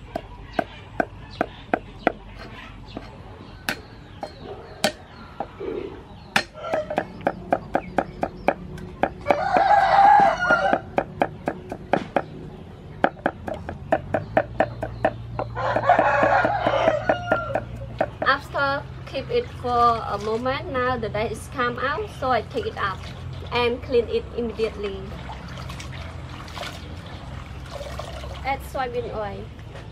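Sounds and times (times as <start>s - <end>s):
cleaver chopping on wooden block: 3.7s - 5.0s, 6.4s - 12.4s, 13.0s - 18.4s
rooster crowing: 6.5s - 7.1s, 9.2s - 11.0s, 15.5s - 17.9s.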